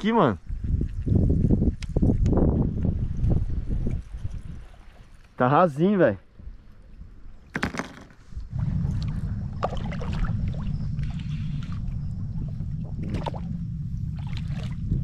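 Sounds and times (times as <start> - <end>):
water sloshing and gurgling: 3.2 - 5.4, 6.5 - 15.0
low rumble: 8.3 - 15.0.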